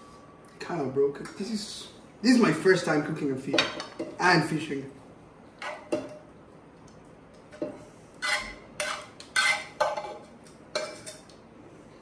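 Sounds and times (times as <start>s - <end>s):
metal fork scraping a frying pan: 8.2s - 11.2s.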